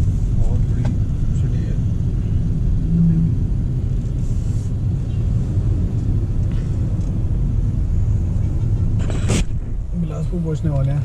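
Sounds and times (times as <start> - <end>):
car cabin road rumble: 0.0 - 11.0.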